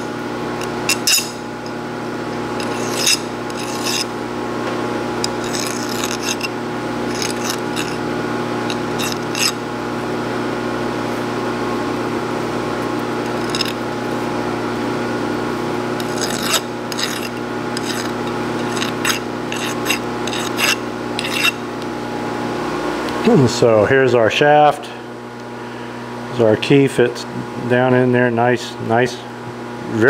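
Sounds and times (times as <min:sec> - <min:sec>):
band saw humming: 0:00.0 - 0:28.0
hand file on metal: 0:02.6 - 0:04.1, 0:05.2 - 0:08.0, 0:08.7 - 0:09.6, 0:13.3 - 0:13.8, 0:16.0 - 0:21.6.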